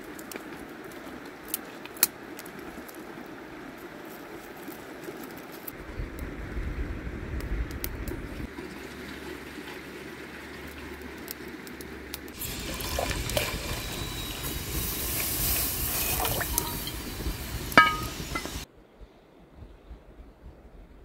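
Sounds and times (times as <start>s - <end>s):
water pouring and splashing into tank: 8.5s - 10.8s, 12.4s - 13.9s, 14.9s - 17.0s.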